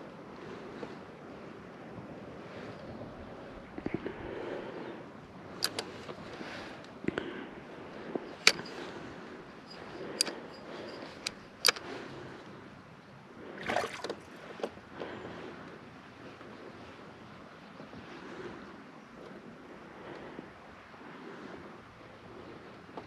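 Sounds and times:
fishing reel clicks and knocks: 0:05.6 - 0:05.9, 0:08.3 - 0:08.9, 0:09.7 - 0:12.0
water lapping against a kayak: 0:13.4 - 0:15.6, 0:17.8 - 0:23.0.

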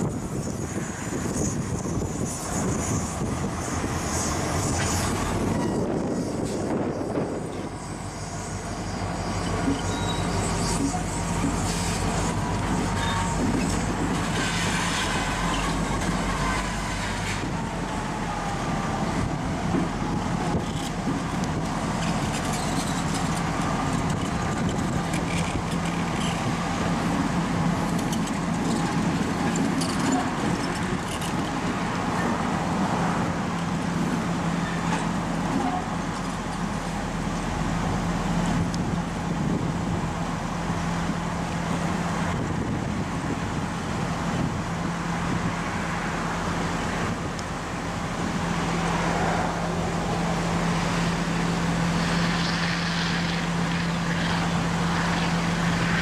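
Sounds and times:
locomotive engine low drone: 0:00.0 - 0:56.0
faint wheel squeal: 0:04.1 - 0:06.7, 0:07.4 - 0:17.4, 0:22.0 - 0:24.0.

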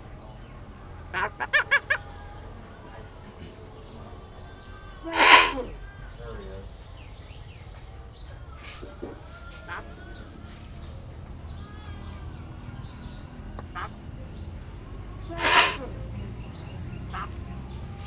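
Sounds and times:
bird harsh squawk: 0:05.1 - 0:05.6, 0:15.4 - 0:15.8
birds whistling and clicking: 0:05.2 - 0:05.6, 0:15.4 - 0:15.8.

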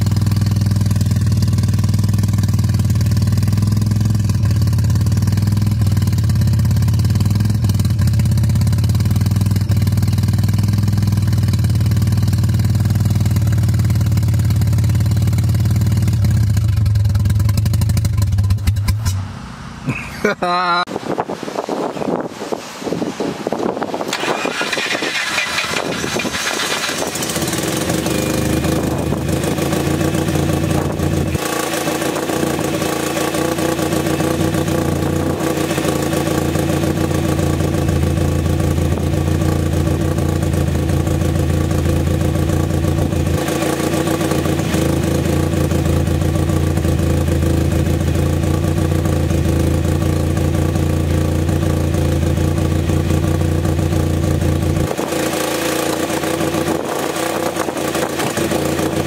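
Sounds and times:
rotary engine running: 0:24.1 - 0:36.6.

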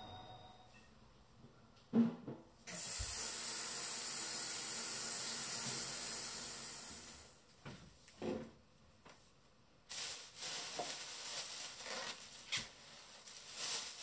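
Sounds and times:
spray bottle hiss: 0:02.7 - 0:07.0
plastic bags rustling: 0:09.8 - 0:14.0.

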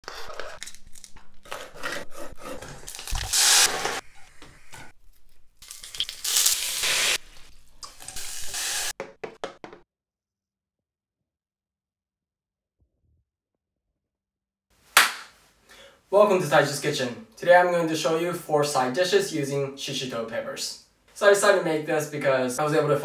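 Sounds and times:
peppers sizzling in oil: 0:05.6 - 0:09.0.

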